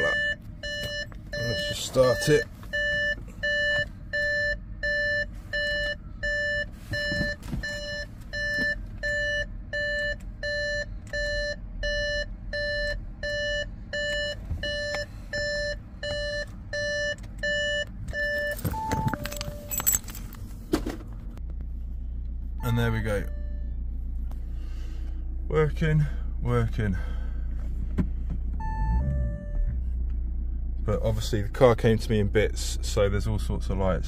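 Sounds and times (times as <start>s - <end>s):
warning chime beeping: 0.0s - 20.0s, 22.6s - 23.8s.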